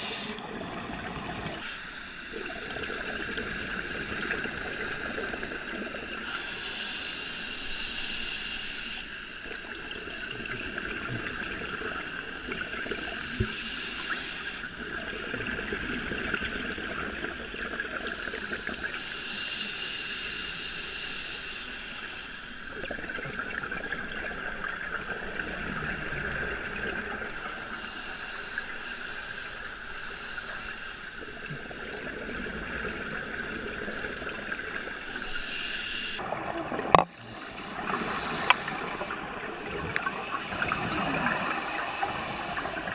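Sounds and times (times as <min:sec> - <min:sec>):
steady underwater hiss: 0:00.0 - 0:42.9
exhaled bubbles underwater: 0:14.7 - 0:19.0, 0:22.7 - 0:27.6, 0:31.3 - 0:35.5, 0:36.1 - 0:42.9.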